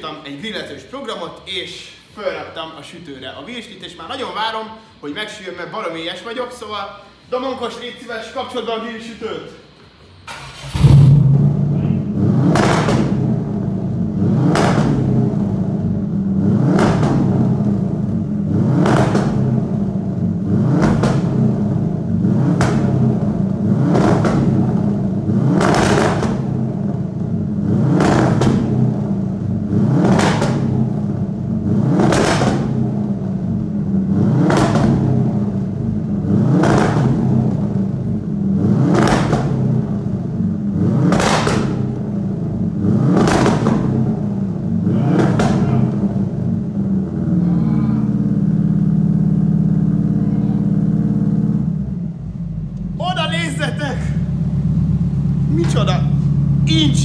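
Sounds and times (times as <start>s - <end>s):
exhaust bangs: 0.0s - 57.0s
turbocharged car engine running: 10.5s - 57.0s.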